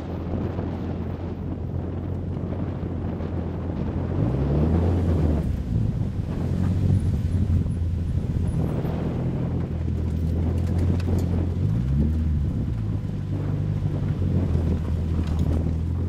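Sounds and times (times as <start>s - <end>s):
car engine low drone: 0.0s - 16.0s.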